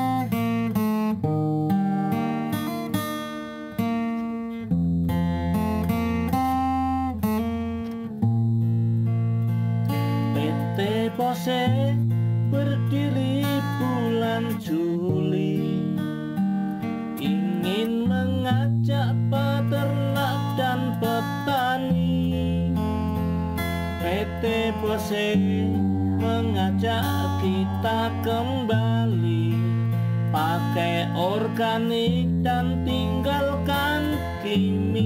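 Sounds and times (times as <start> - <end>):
acoustic guitar music: 0.0 - 35.0
sustained bass notes: 18.0 - 35.0.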